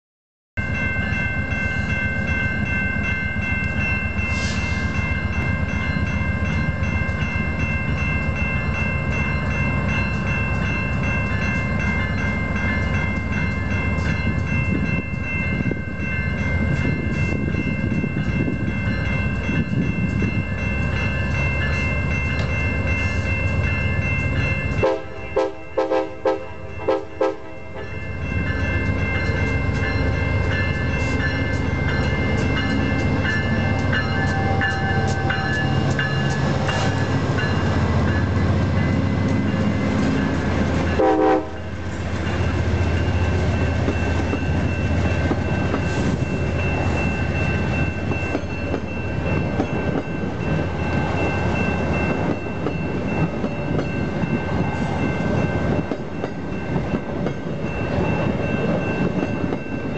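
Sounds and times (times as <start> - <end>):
train horn: 24.8 - 28.0, 41.0 - 41.8.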